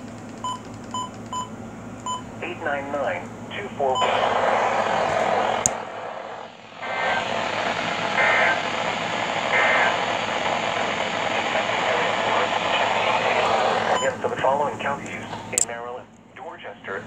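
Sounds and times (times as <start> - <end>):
radio static hiss: 2.4 - 17.0
data tone bursts: 3.9 - 4.7, 9.4 - 14.2.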